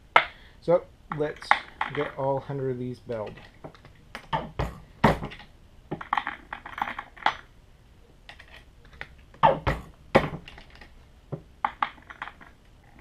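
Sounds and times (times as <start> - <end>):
brass cases clicking and clacking: 1.1 - 2.2, 3.1 - 7.5, 8.3 - 11.0, 11.6 - 13.0
sharp knocks: 4.2 - 6.4, 9.4 - 10.5.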